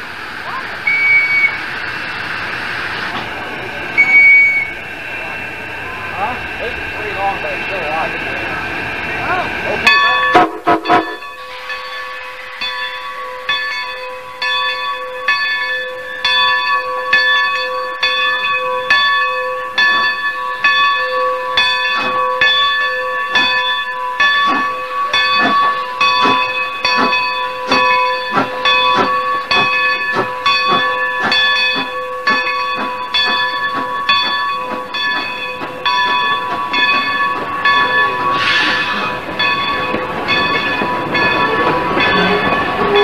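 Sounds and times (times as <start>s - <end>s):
steam hissing: 0.0s - 12.8s, 21.9s - 43.0s
steam locomotive exhaust chuffs: 0.0s - 43.0s
locomotive bell ringing: 0.3s - 43.0s.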